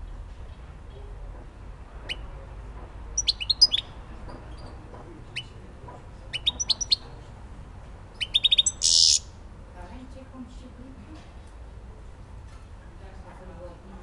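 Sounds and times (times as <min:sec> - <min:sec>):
goldfinch singing: 0:03.2 - 0:03.9, 0:06.3 - 0:07.0, 0:08.2 - 0:09.2.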